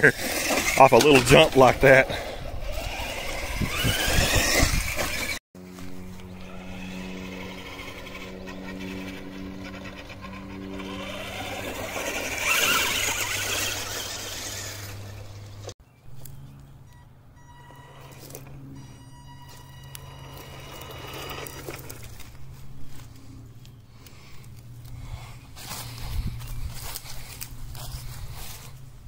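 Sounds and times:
toy truck electric motor whining: 0:00.0 - 0:15.8, 0:17.4 - 0:22.5.

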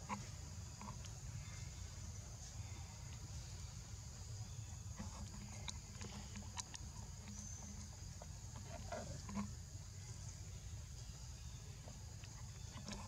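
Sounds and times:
faint clicks and rustles: 0:04.7 - 0:13.0.

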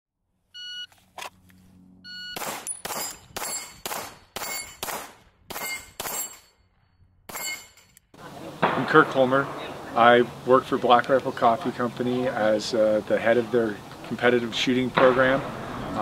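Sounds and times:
metallic ring: 0:02.1 - 0:04.9, 0:05.5 - 0:08.1
pistol shots echoing: 0:15.0 - 0:16.0.

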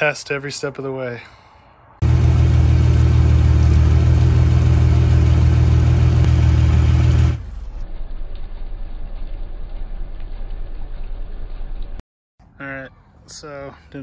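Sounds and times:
car engine running: 0:02.0 - 0:11.9
low rumble: 0:02.0 - 0:12.0.

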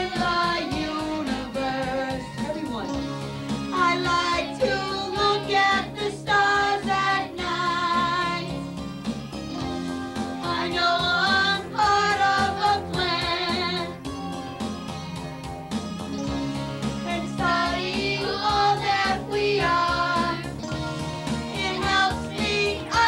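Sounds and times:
children singing: 0:00.0 - 0:02.6, 0:03.7 - 0:08.6, 0:09.5 - 0:14.0, 0:16.3 - 0:23.0
woman singing: 0:00.0 - 0:03.0, 0:03.7 - 0:08.3
instrumental backing music: 0:00.0 - 0:23.0.

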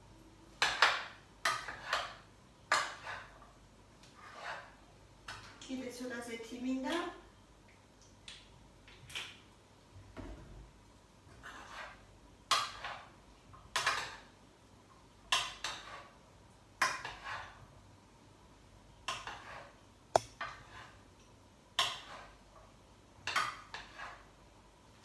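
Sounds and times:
spoon scraping a pot: 0:00.6 - 0:05.5, 0:11.3 - 0:13.1, 0:15.3 - 0:16.2, 0:16.8 - 0:17.7, 0:19.0 - 0:19.8, 0:20.4 - 0:21.1, 0:21.8 - 0:22.5, 0:23.2 - 0:24.4.

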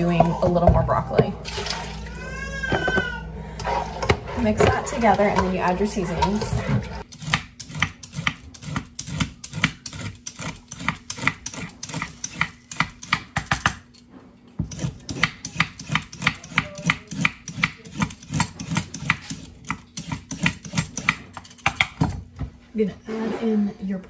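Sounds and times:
vegetable peeler scraping carrot: 0:03.6 - 0:13.4.

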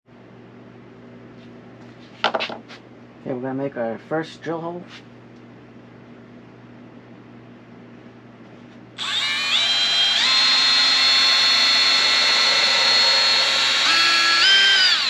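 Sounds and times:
cordless drill motor whine: 0:09.0 - 0:15.0.

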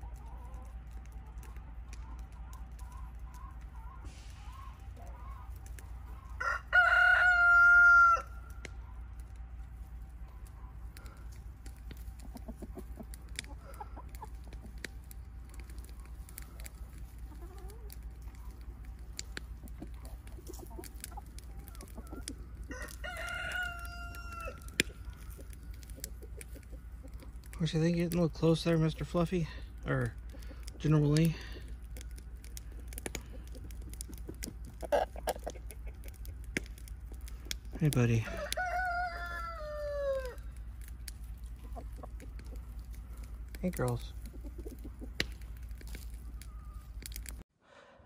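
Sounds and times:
hens clucking: 0:00.0 - 0:47.4
rooster crowing: 0:06.3 - 0:08.4, 0:21.7 - 0:24.8, 0:38.2 - 0:40.4.

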